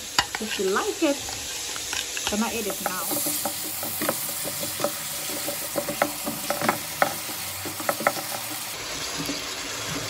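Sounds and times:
mushrooms sizzling in sauce: 0:00.0 - 0:10.0
utensil knocking against pan: 0:02.6 - 0:08.6.

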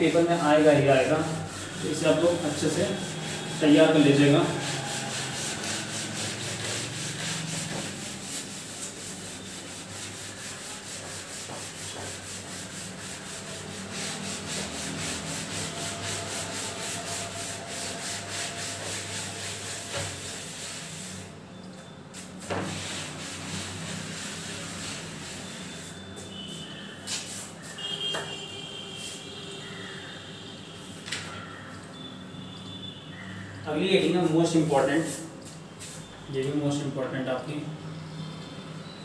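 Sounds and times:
cloth wiping a chalkboard: 0:00.0 - 0:21.4, 0:22.1 - 0:29.5, 0:33.8 - 0:36.0.

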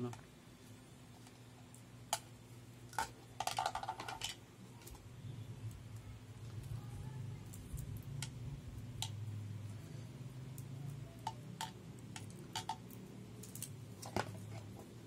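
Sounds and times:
low steady hum: 0:00.0 - 0:15.0
small plastic clicks and taps: 0:11.1 - 0:14.4.

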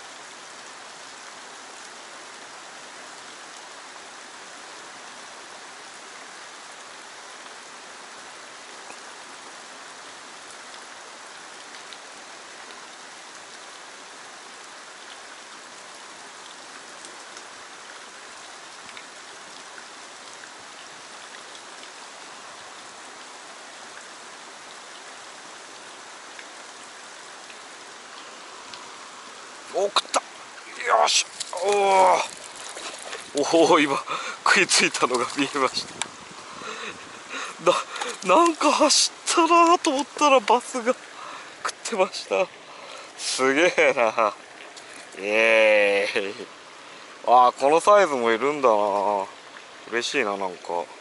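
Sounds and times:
stream water rushing over rock: 0:00.0 - 0:51.0
faint small ticks: 0:08.8 - 0:09.1, 0:16.4 - 0:17.6, 0:18.4 - 0:22.0, 0:44.6 - 0:45.2.

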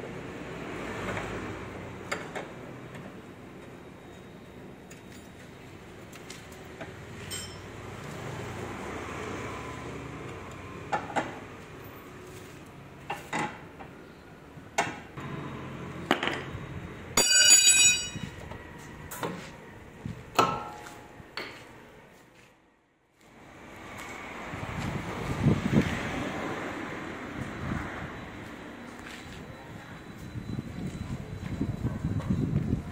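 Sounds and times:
spanners clinking on metal: 0:07.2 - 0:07.7, 0:17.2 - 0:18.3
ringing metal clatter: 0:07.2 - 0:07.8, 0:17.2 - 0:18.4.

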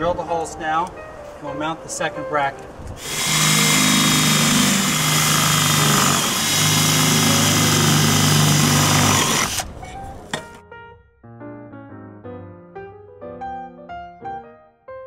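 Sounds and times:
cordless drill boring through metal: 0:03.0 - 0:09.7.

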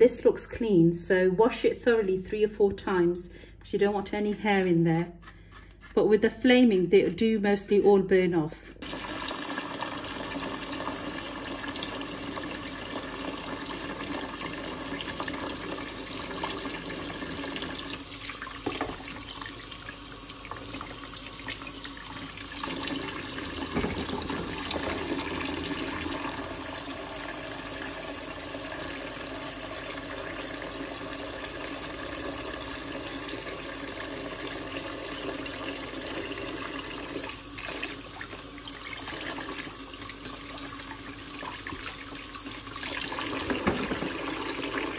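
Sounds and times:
tap running into water: 0:08.8 - 0:32.8, 0:33.6 - 0:44.9.

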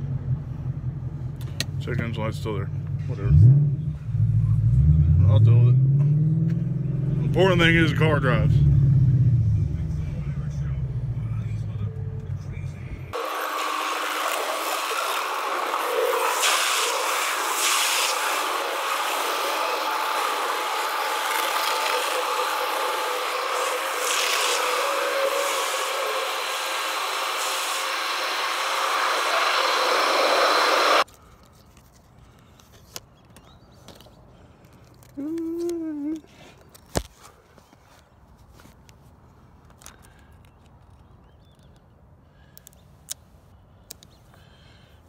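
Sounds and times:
brushes scrubbing car body: 0:13.2 - 0:31.0
car wash water spray: 0:13.2 - 0:31.0.

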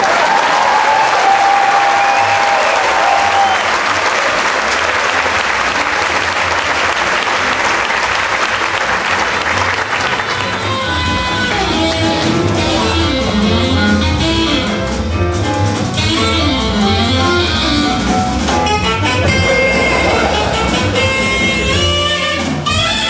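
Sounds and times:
audience applauding: 0:00.0 - 0:12.4, 0:19.0 - 0:23.0
guitar music: 0:10.7 - 0:23.0.

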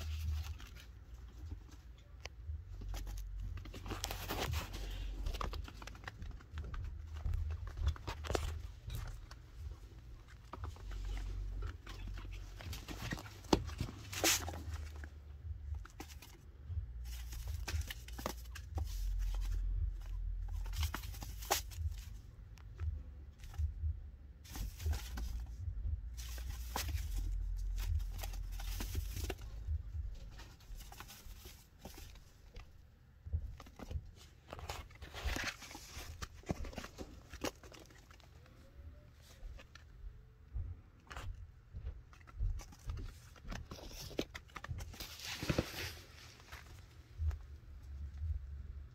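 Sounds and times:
chinchilla scuffling and rustling: 0:00.0 - 0:16.4, 0:17.0 - 0:22.2, 0:24.4 - 0:32.8, 0:33.4 - 0:38.6, 0:41.1 - 0:47.2
low thumps and rumble: 0:02.4 - 0:31.3, 0:31.9 - 0:34.7.

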